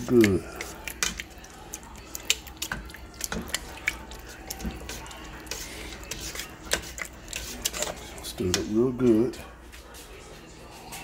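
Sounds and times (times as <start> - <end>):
thick stew squishing: 0.0 - 11.0
spoon scraping metal pot: 2.3 - 8.8.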